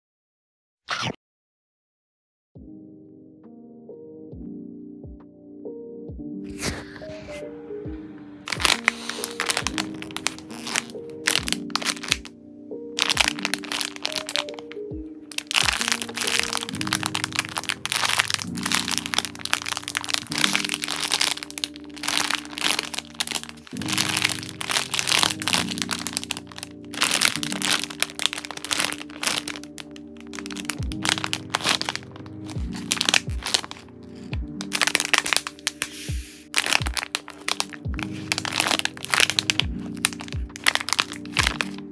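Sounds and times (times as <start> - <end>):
soft background music: 2.6 - 41.9
plastic bags crinkling: 8.5 - 12.3, 13.0 - 35.9, 36.5 - 41.9.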